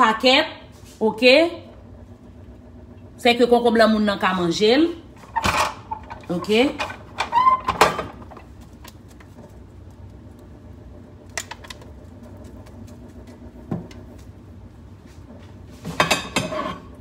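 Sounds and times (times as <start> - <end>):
kitchen background: 0.0 - 17.0.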